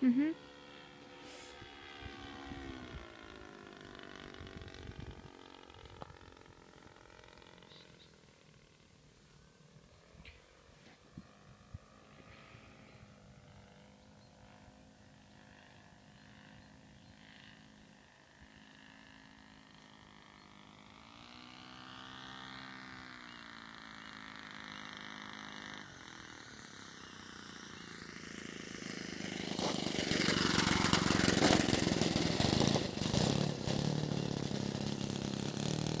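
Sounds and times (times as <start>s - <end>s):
model airplane engine: 0.0s - 36.0s.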